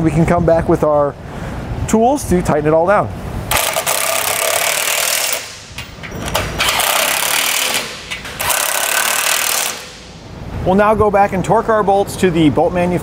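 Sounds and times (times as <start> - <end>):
power tool running nuts: 3.5 - 10.0.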